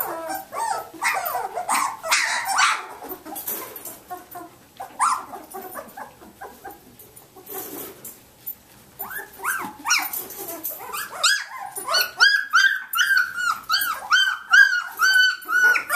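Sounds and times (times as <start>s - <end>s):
puppy whimpers: 0.0s - 3.4s, 4.1s - 6.9s, 9.0s - 15.9s
puppies yipping and whining: 0.0s - 7.8s, 9.0s - 15.9s.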